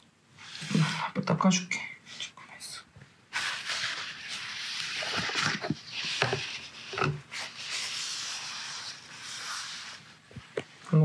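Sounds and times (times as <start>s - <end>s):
paper tissue scrubbing floor: 0.4s - 1.2s, 3.3s - 11.0s.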